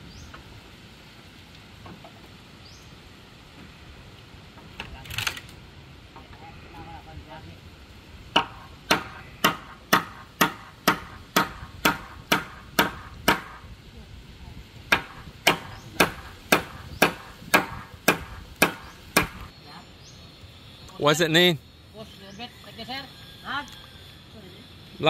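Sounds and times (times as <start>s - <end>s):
hand tool striking wood: 8.4s - 13.6s, 14.9s - 19.5s.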